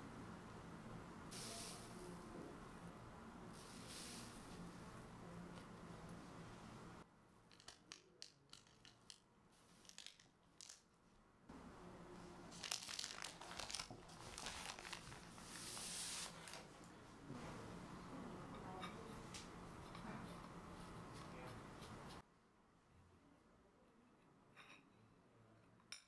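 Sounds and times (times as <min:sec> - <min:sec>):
paper crinkling and tearing: 0:12.5 - 0:16.8.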